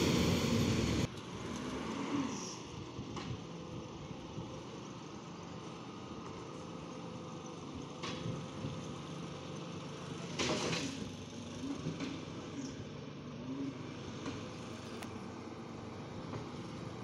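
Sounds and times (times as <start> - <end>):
hissing burst: 0.0 - 1.1
garbage truck diesel engine running: 0.0 - 1.2, 2.7 - 17.0.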